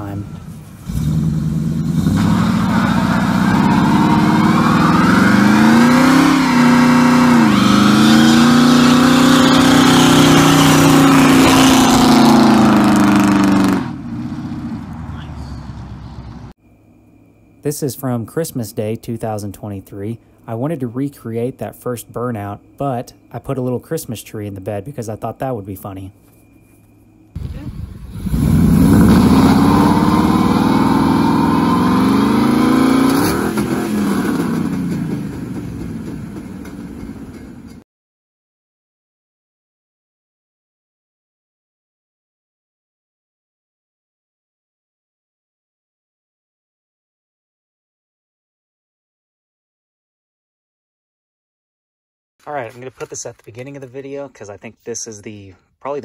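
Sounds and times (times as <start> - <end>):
engine revving high: 0.0 - 16.5, 28.0 - 35.2
sudden break of drivetrain: 27.4 - 37.8.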